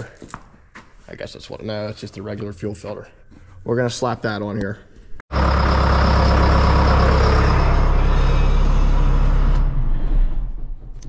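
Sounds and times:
tractor diesel engine running: 5.3 - 10.8.

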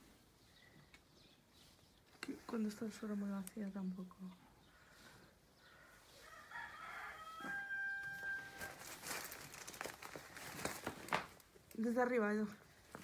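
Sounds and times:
rooster crowing: 6.2 - 8.9.

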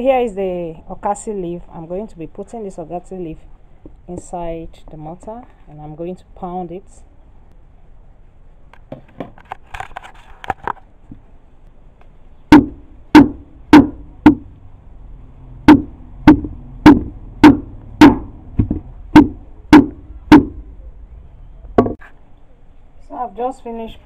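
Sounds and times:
pestle pounding in wooden mortar: 12.5 - 14.5, 15.7 - 20.7.

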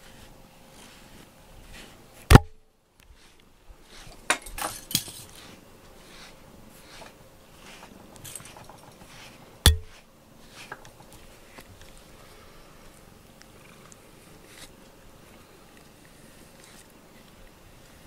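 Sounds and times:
scratchy brush strokes: 0.0 - 2.3, 3.0 - 18.0
sharp knock: 9.7 - 10.0
cat purring: 12.0 - 18.0.

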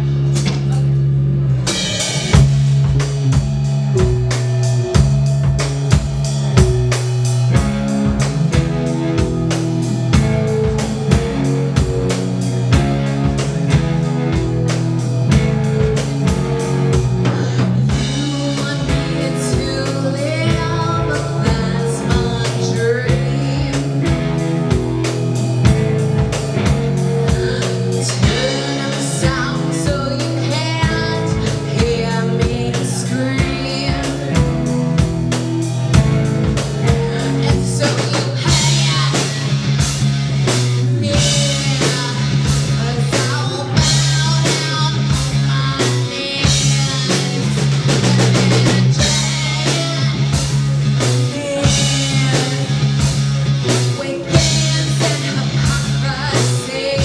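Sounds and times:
distorted electric guitars: 0.0 - 57.0
drum kit beats: 0.0 - 57.0
woman singing into a microphone: 17.2 - 24.4, 27.2 - 34.6, 36.8 - 39.6, 40.9 - 53.1, 53.7 - 57.0.

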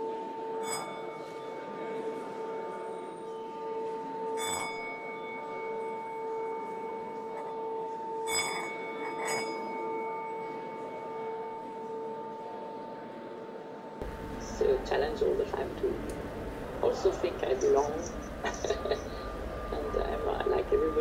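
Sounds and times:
ringing drone: 0.0 - 13.1, 14.0 - 21.0
bell-like chimes: 0.6 - 1.7, 4.4 - 11.7, 17.6 - 21.0.

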